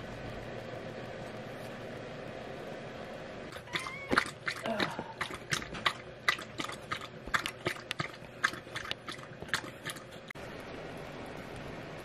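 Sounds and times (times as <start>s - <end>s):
dog lapping water from metal bowl: 5.2s - 10.2s.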